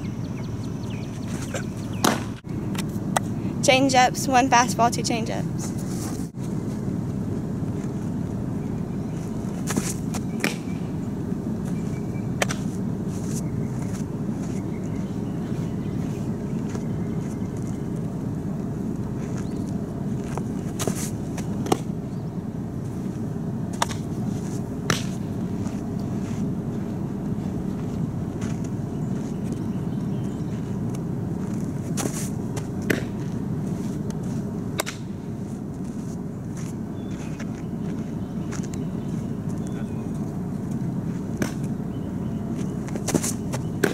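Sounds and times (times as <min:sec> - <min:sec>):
softball popping into mitt: 0:09.6 - 0:10.7, 0:24.8 - 0:25.2, 0:32.0 - 0:33.3, 0:34.8 - 0:35.1
softball smacking into mitt: 0:24.9 - 0:25.2, 0:32.8 - 0:33.2.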